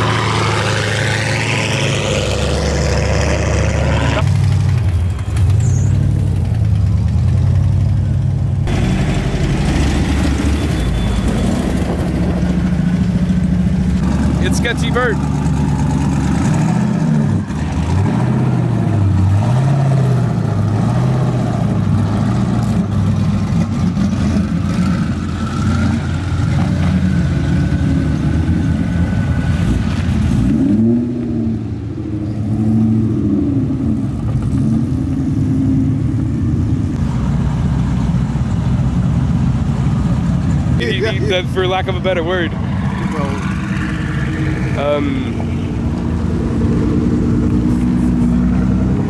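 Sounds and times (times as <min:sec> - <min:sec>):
car engines revving: 0:00.0 - 0:49.0.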